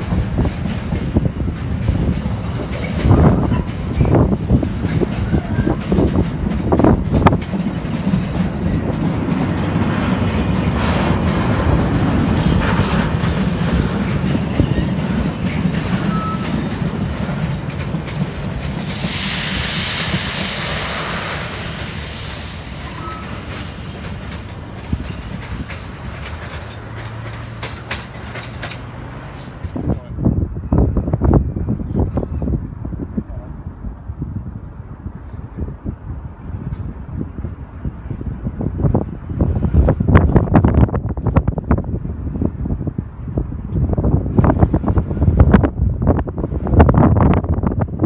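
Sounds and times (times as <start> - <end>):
train wheels clattering and rumbling: 0.0 - 48.0
hissing rush: 18.1 - 24.5.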